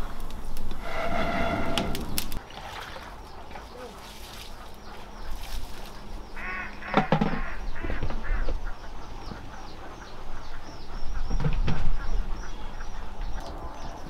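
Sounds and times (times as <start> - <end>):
fowl quacking: 4.6 - 11.0.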